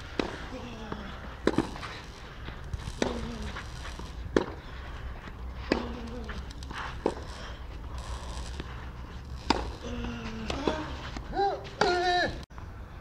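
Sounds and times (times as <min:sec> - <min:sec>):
tennis ball hits: 0:09.5 - 0:09.8.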